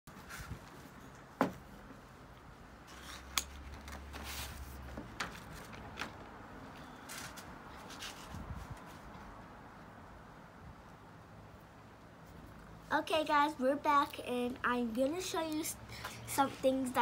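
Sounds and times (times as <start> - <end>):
paper rustling: 2.9 - 9.2.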